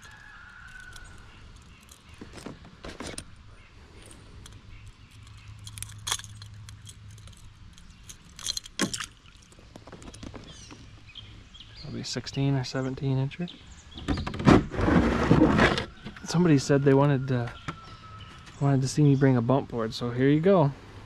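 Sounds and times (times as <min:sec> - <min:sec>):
fishing hooks and pliers clicking: 0:04.4 - 0:09.6.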